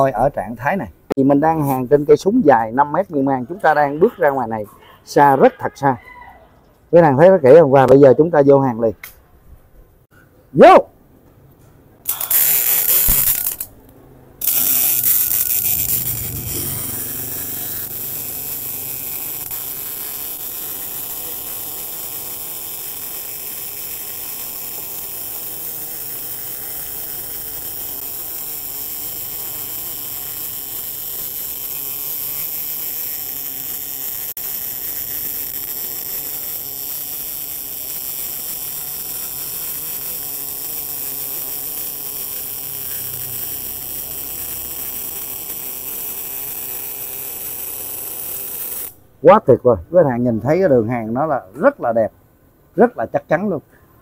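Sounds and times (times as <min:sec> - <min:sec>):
welding arc buzzing hiss: 0:12.0 - 0:49.1.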